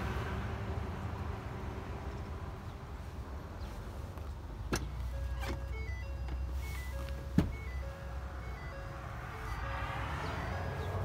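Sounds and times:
short beeping tune: 5.1 - 11.0.

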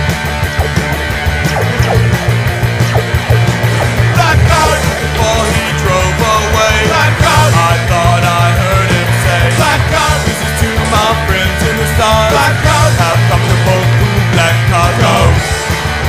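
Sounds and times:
loud punk rock music: 0.0 - 16.0
person singing: 3.3 - 15.4.

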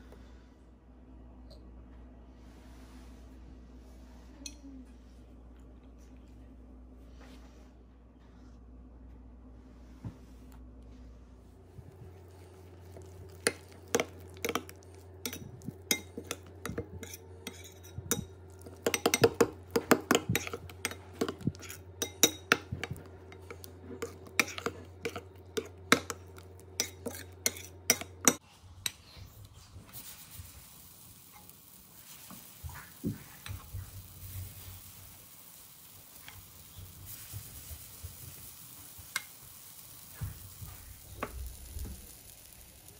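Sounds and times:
batter sizzling in pan: 11.9 - 42.9.

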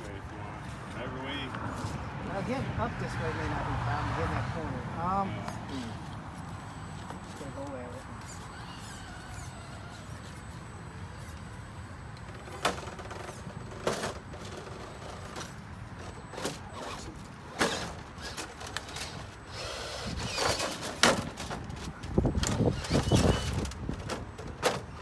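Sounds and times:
small electric motor running: 7.9 - 11.3, 17.6 - 20.8, 22.5 - 23.7.

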